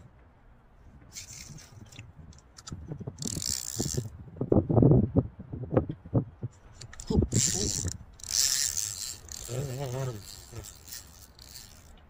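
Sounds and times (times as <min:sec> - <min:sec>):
fishing reel hissing scrapes: 0:01.1 - 0:02.0, 0:03.2 - 0:04.1, 0:06.8 - 0:11.9
fishing rod knocks and rattles: 0:01.1 - 0:04.1, 0:06.6 - 0:12.0.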